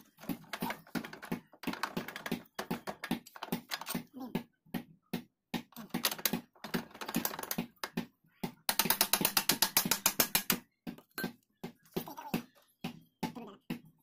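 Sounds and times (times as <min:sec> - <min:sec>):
tools clicking on metal: 0:08.7 - 0:10.6.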